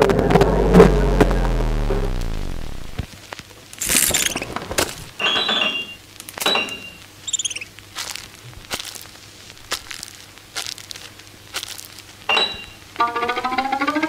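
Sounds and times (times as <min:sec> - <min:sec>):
high chirps: 0:03.8 - 0:04.5, 0:06.6 - 0:07.7.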